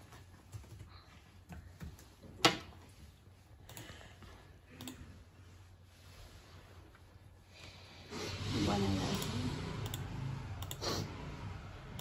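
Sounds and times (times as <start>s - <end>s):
laptop and mouse clicks: 9.1s - 10.8s.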